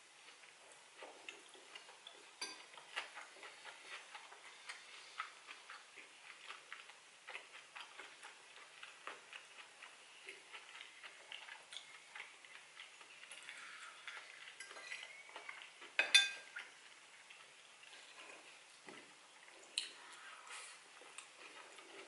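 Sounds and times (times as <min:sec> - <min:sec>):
chewing: 0:00.2 - 0:22.0
metal fork clinking on bowl: 0:02.4 - 0:02.7, 0:14.6 - 0:15.2, 0:16.0 - 0:16.4
fork scraping in a bowl: 0:14.6 - 0:15.3.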